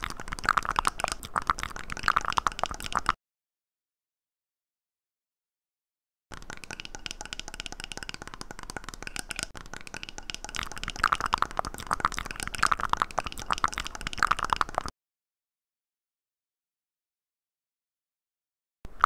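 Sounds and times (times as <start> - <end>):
wet mouth clicks and smacks: 0.0 - 3.2, 6.3 - 14.9.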